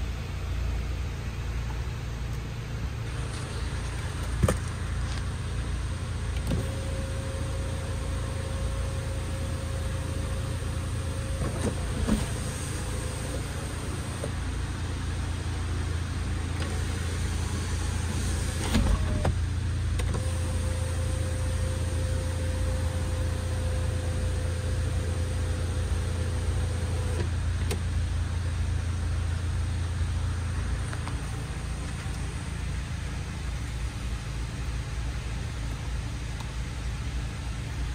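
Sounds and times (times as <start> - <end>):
steady low hum: 0.0 - 37.9
sunshade motor whine: 0.0 - 37.9
sunroof glass sliding shut: 11.1 - 14.4, 16.5 - 19.4
sunroof clunk: 11.3 - 14.4.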